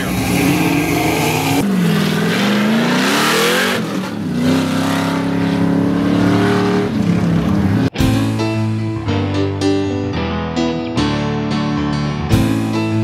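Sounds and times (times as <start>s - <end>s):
car engine running hard: 0.0s - 7.9s.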